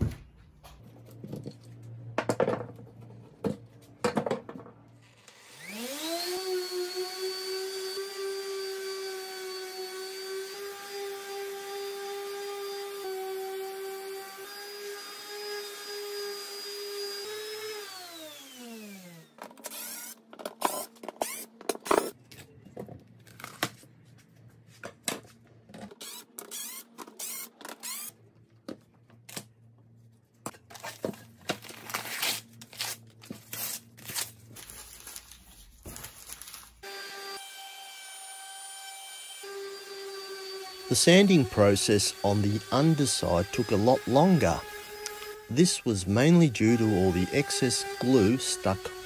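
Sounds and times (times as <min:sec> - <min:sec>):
orbital sander on wood: 0:05.5 - 0:19.2, 0:36.8 - 0:49.0
cordless drill driving screws: 0:19.6 - 0:21.5, 0:26.0 - 0:28.2, 0:39.5 - 0:45.9.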